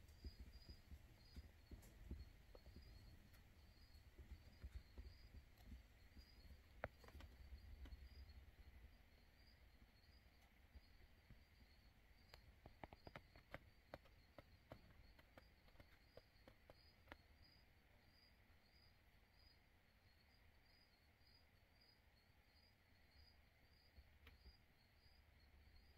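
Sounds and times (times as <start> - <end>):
faint irregular clicks: 0.0 - 17.6, 24.0 - 24.6.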